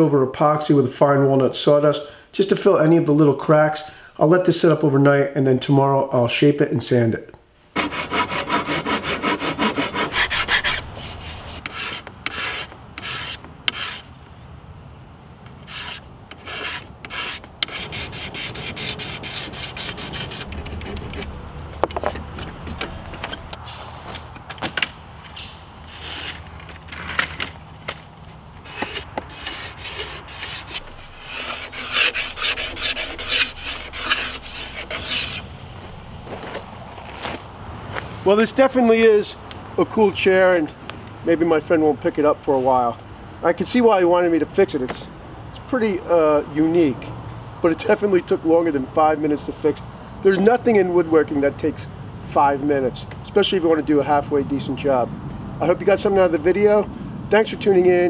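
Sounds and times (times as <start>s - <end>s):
hand saw cutting wood: 7.8s - 14.1s, 15.6s - 21.3s, 28.6s - 35.5s.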